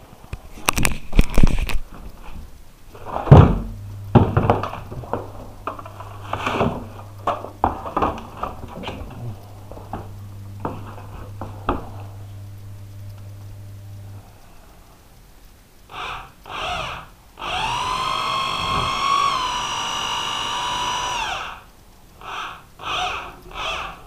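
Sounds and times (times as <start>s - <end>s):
steady low hum: 0.0s - 24.0s
knocks and thuds: 3.2s - 5.3s.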